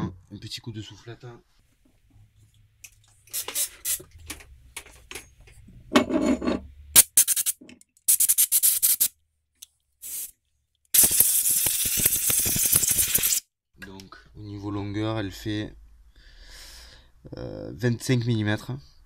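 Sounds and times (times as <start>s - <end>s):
compressed air blasts: 7.0s - 9.1s, 10.0s - 10.3s, 11.0s - 13.4s.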